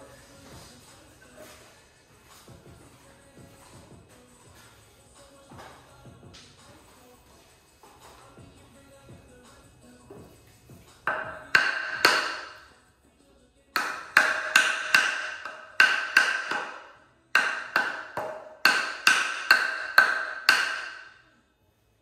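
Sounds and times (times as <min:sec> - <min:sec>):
hammer blows on wood: 0:11.1 - 0:12.6, 0:13.8 - 0:21.1.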